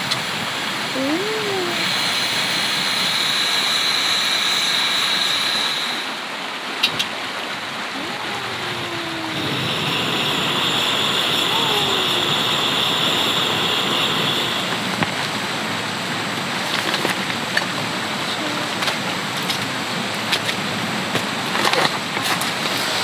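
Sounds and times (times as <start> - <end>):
stream rushing: 0.0 - 23.0
high steady tone: 8.0 - 14.9.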